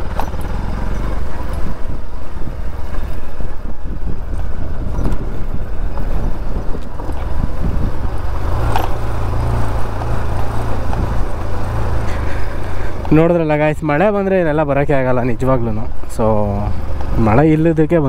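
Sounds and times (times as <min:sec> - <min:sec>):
knocks and rattles from bumps: 0:00.0 - 0:02.1, 0:04.2 - 0:13.2
motorcycle engine running: 0:00.0 - 0:17.5.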